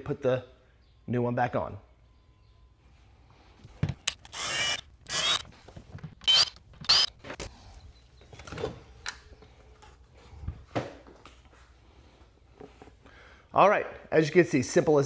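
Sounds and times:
cordless drill whirring: 4.1s - 5.6s, 6.2s - 7.2s.

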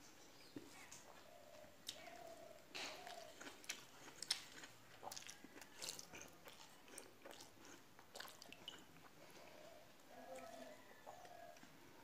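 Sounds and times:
chewing: 0.5s - 9.6s.

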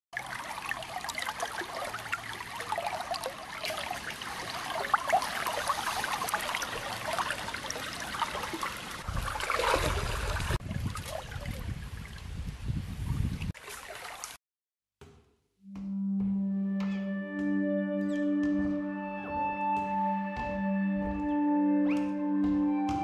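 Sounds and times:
stream water trickling: 0.1s - 14.4s
person splashing through water: 0.2s - 11.8s, 13.6s - 14.4s.

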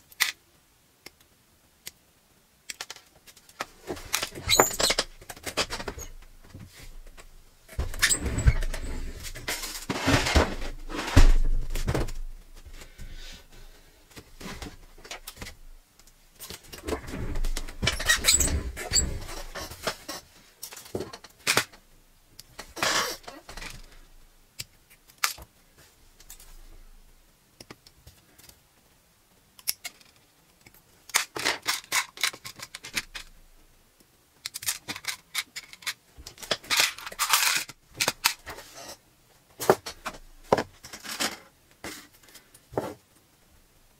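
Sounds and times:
small parts clattering into tubs: 2.7s - 12.3s, 34.4s - 39.0s.

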